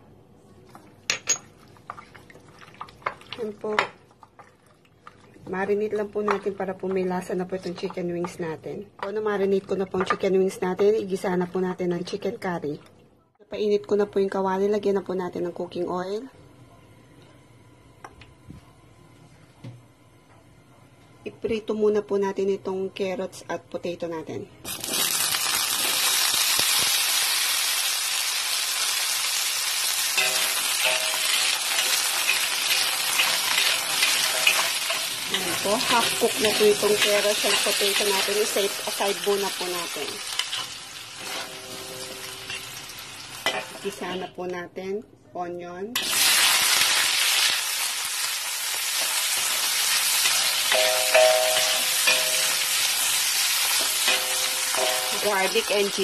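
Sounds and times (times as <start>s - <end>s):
vegetables sizzling in oil: 24.6s - 44.2s, 46.0s - 56.0s
metal ladle stirring in wok: 30.2s - 38.4s, 40.4s - 42.6s
spatula scraping and clattering: 30.2s - 38.8s, 40.4s - 42.8s, 53.7s - 55.3s.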